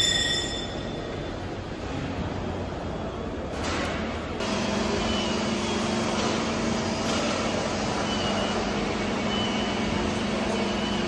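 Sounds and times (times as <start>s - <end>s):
faint high tones: 0.0s - 1.5s
factory machinery hum: 0.0s - 11.0s.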